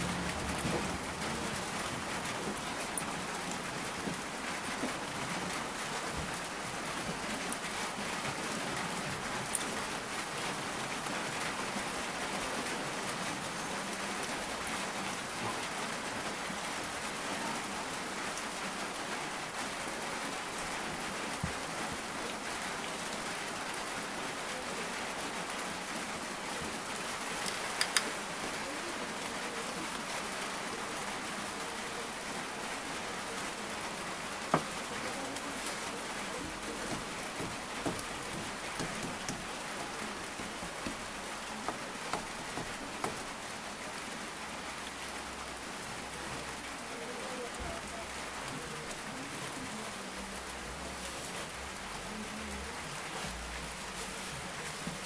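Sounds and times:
steady rain falling: 0:00.0 - 0:55.0
single raindrops ticking: 0:27.4 - 0:28.2.

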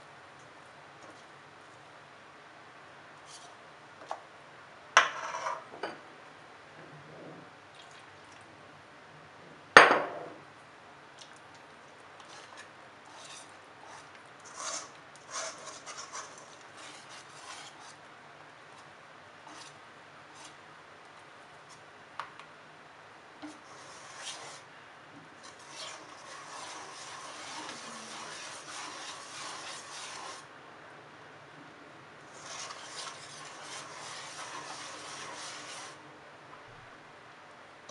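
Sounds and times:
whisk scraping metal bowl: 0:03.2 - 0:03.6, 0:12.2 - 0:18.1, 0:19.4 - 0:20.6, 0:23.4 - 0:24.7, 0:25.4 - 0:30.4, 0:32.3 - 0:36.0.

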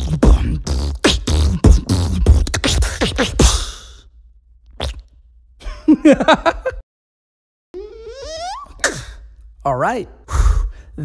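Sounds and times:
beatboxer lip pops and buzzing: 0:00.0 - 0:04.0, 0:04.6 - 0:05.3, 0:08.4 - 0:09.2.

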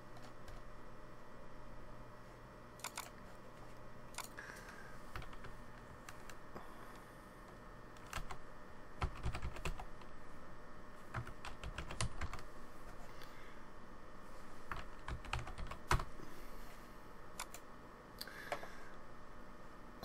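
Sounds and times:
keyboard typing clicks: 0:02.8 - 0:03.2, 0:17.4 - 0:17.6.

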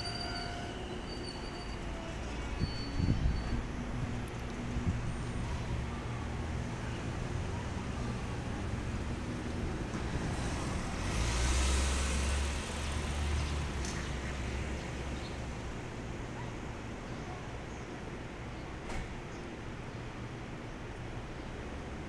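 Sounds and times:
train equipment humming: 0:00.0 - 0:11.0.

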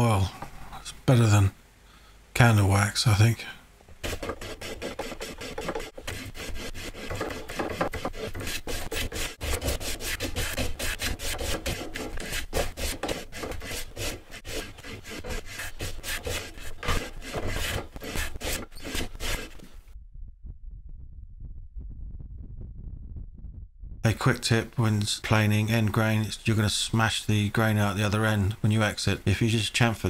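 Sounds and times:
hand plane scraping wood: 0:04.0 - 0:19.9.

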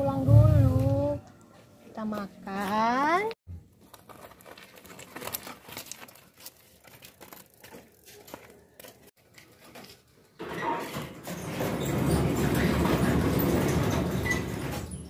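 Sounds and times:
footsteps on gravel: 0:02.0 - 0:10.1
gravel crunching under bicycle tyres: 0:03.5 - 0:10.1.

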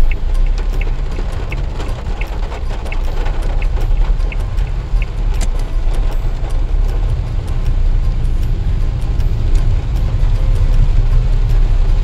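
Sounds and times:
engine and road rumble: 0:00.0 - 0:12.0
raindrops ticking on car: 0:00.0 - 0:12.0.

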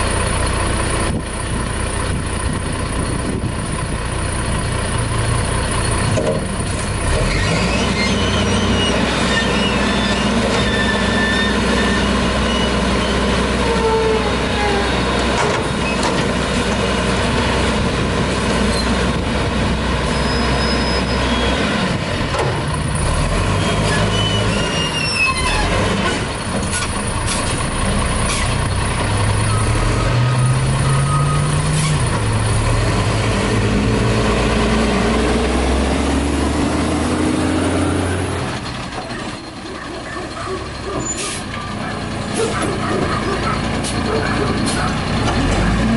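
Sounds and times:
garbage truck engine running: 0:00.0 - 0:45.9
knocks and clanks: 0:15.3 - 0:16.4.

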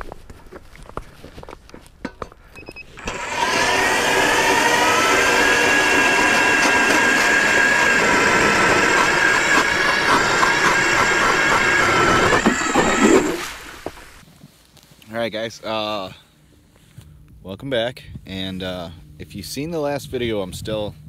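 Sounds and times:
ice auger motor whine: 0:02.9 - 0:14.2.

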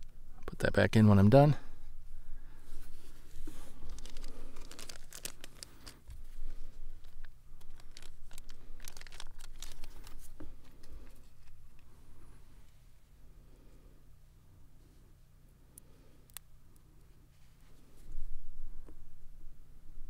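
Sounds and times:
plastic bag crinkling: 0:03.4 - 0:11.9.

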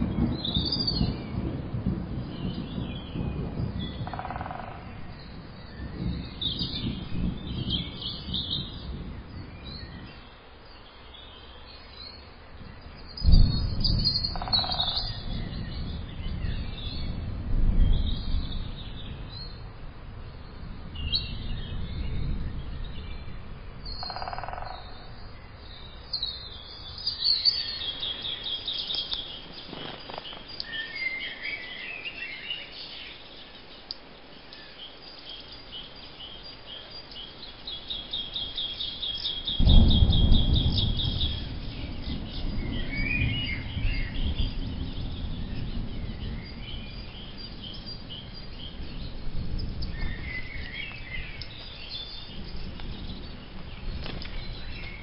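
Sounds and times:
birds chirping: 0:02.2 - 0:19.7, 0:20.4 - 0:55.0
low rumble: 0:12.5 - 0:24.1.

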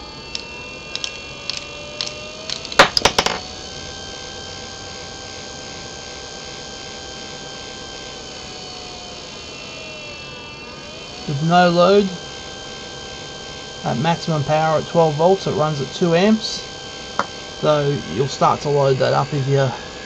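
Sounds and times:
electric motor whine: 0:00.0 - 0:20.0
screwdriver clicking and clattering: 0:00.3 - 0:03.5.

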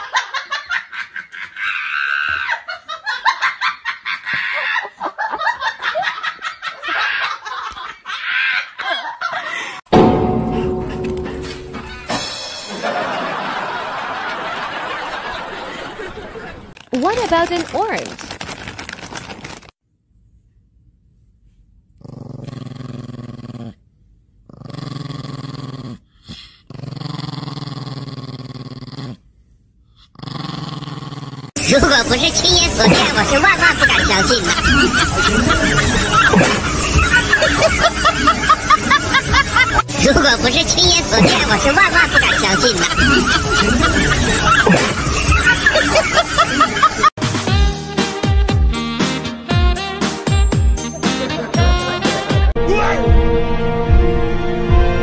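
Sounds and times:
person laughing in high giggles: 0:00.0 - 0:09.8, 0:31.6 - 0:47.1
music: 0:09.9 - 0:13.2, 0:47.2 - 0:55.0
small dog growling: 0:22.0 - 0:23.8, 0:24.4 - 0:29.2, 0:30.1 - 0:31.6.

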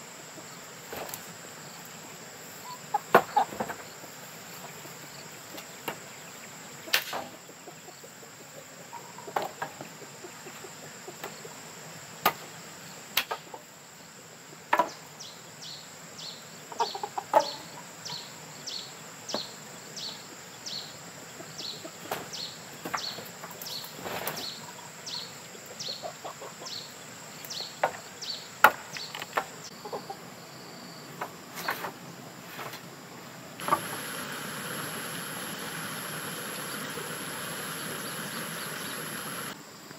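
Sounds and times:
high insect drone: 0:00.0 - 0:39.9
chicken clucking: 0:06.9 - 0:11.6, 0:16.6 - 0:18.4, 0:21.3 - 0:22.2, 0:25.5 - 0:26.9, 0:29.7 - 0:30.3, 0:33.6 - 0:39.6.

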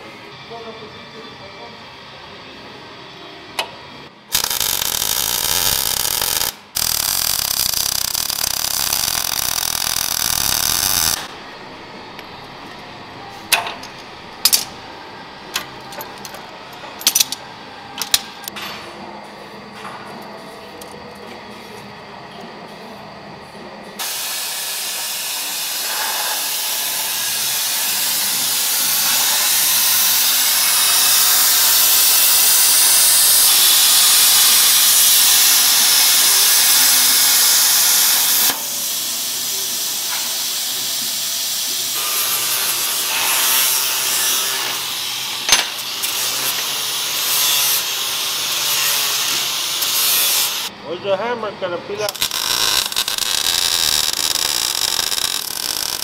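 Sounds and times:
angle grinder on steel: 0:04.3 - 0:11.3, 0:24.0 - 0:41.0, 0:41.6 - 0:50.7, 0:52.0 - 0:56.0
plasma cutter hissing: 0:04.3 - 0:11.6, 0:24.0 - 0:50.7, 0:52.0 - 0:56.0.

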